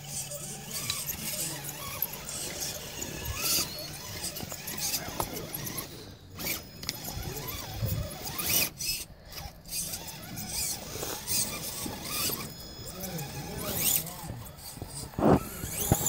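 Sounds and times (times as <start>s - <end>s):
electric motor whining: 0.0s - 16.0s
tyres scraping over rock: 9.9s - 16.0s.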